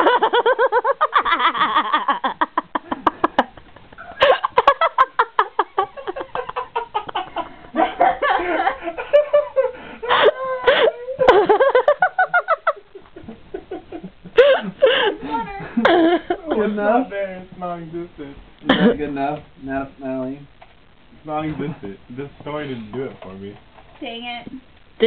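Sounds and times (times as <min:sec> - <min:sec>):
group of people laughing: 0:00.0 - 0:16.7.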